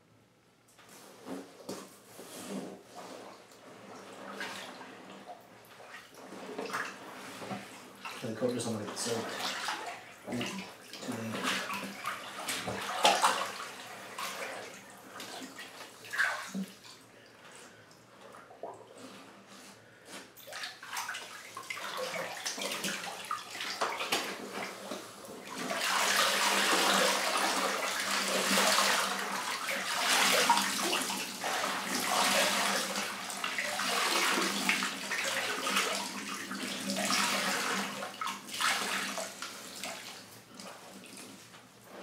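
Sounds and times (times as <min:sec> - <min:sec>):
water sloshing in bathtub: 0:00.8 - 0:42.0
water pouring into tub: 0:03.7 - 0:17.0, 0:20.4 - 0:41.3.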